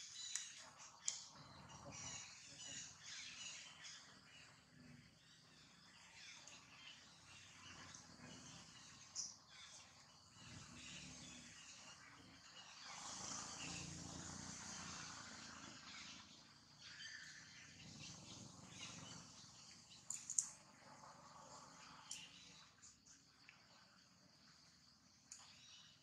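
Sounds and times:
insects buzzing: 0:00.0 - 0:26.0
sharp clicks: 0:20.0 - 0:20.6.

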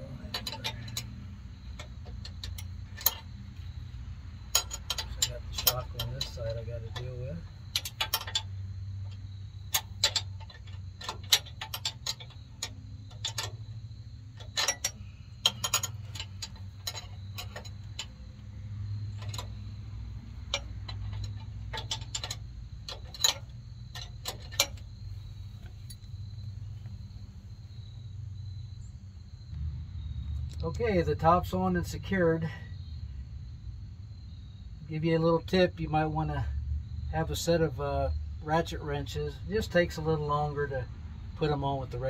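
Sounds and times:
wrench clicking on bolts: 0:00.0 - 0:26.2.

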